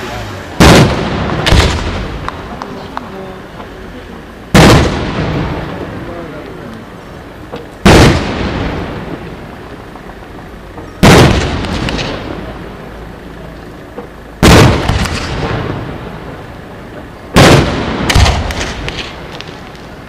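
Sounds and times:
fireworks shells bursting: 17.0s - 20.0s.

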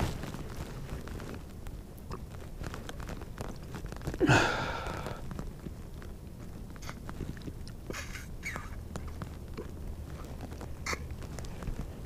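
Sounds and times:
man sighing: 4.2s - 5.2s.

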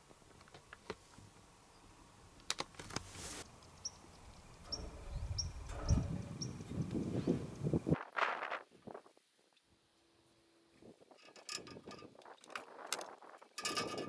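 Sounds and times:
brief rustle: 2.5s - 3.5s.

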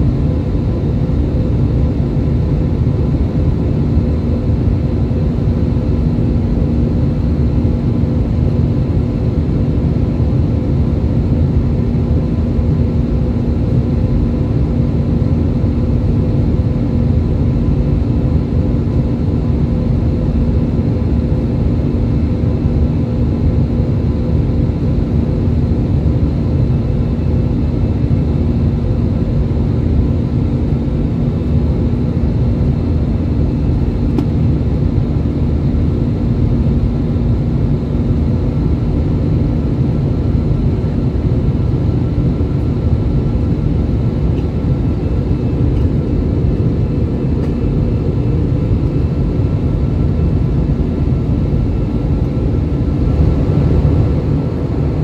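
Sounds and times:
jet engine roar in cabin: 0.0s - 55.0s.

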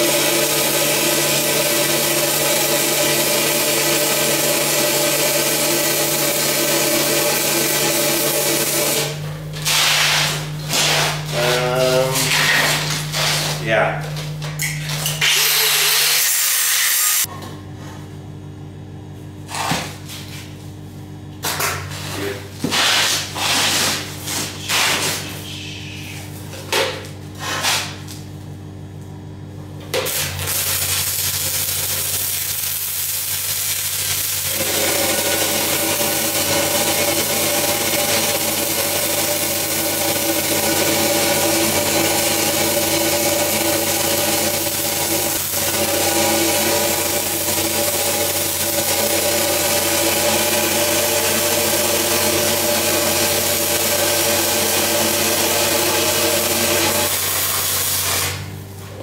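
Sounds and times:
welder engine humming: 29.9s - 58.9s
arc welding crackle: 30.0s - 34.6s, 37.4s - 50.5s.

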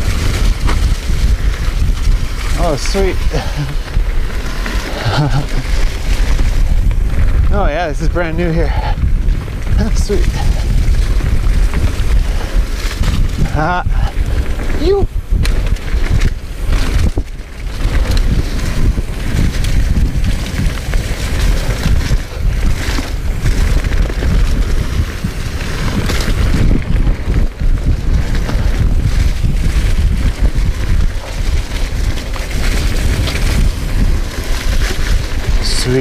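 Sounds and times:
bike knocking and rattling: 0.0s - 36.0s
tyres rolling over dirt and leaves: 0.0s - 36.0s
wind buffeting microphone: 0.0s - 36.0s.

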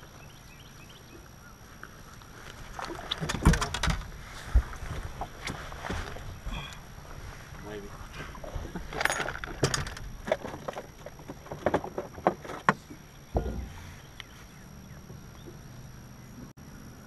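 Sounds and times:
clicks and knocks on boat deck: 2.9s - 4.1s, 9.0s - 14.0s
dull low thump: 13.3s - 14.2s.

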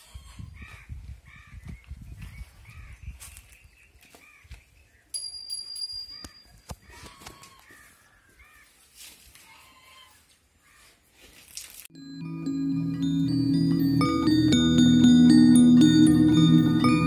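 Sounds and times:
high steady ringing tone: 11.9s - 17.0s.

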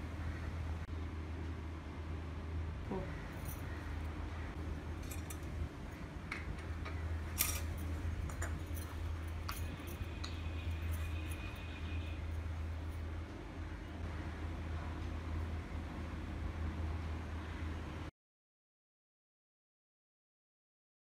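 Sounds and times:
steady low hum: 0.0s - 18.1s
glass lamps clinking on tiles: 6.8s - 11.7s.

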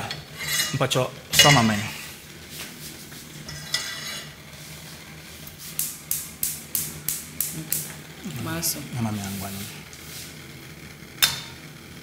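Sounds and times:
steady low hum: 0.0s - 12.0s
spoon scraping in cooking pot: 0.2s - 0.8s, 3.4s - 4.4s.

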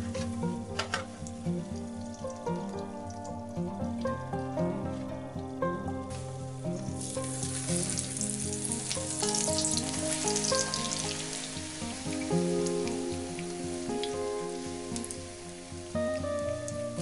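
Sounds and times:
background music: 0.0s - 17.0s
omelette sizzling in hot oil: 6.1s - 17.0s.

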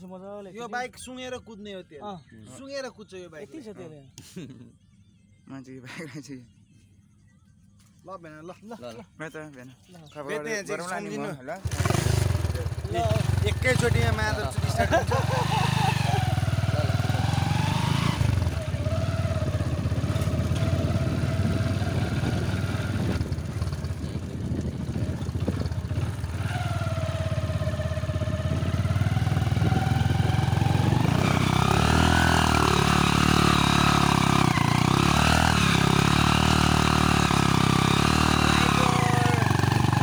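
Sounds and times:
motorcycle engine running: 11.6s - 40.0s
wind rumble on microphone: 18.4s - 31.7s.

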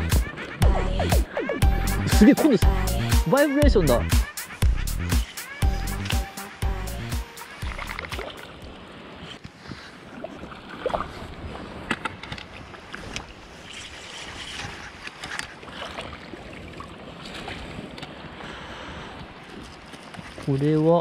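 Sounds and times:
fish splashing at water surface: 7.5s - 8.6s.

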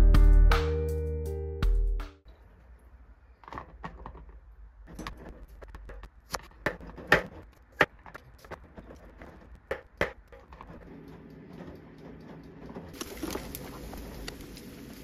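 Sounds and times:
background music: 0.0s - 2.2s.

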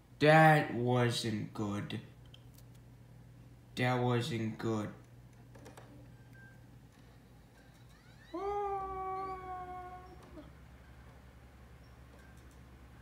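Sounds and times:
high-pitched vocal cry: 8.2s - 10.6s.

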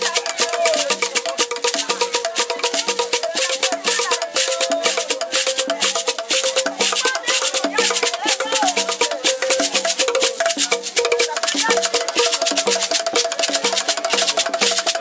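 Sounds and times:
beaded gourd rattle shaken: 0.0s - 15.0s
voices singing: 0.0s - 15.0s
wooden drum struck with sticks: 0.0s - 15.0s.

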